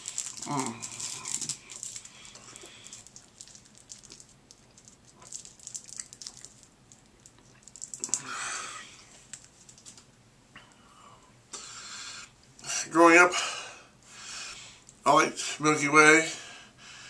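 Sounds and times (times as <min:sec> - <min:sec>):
candy wrapper crinkling: 0:00.0 - 0:08.4, 0:09.1 - 0:10.1.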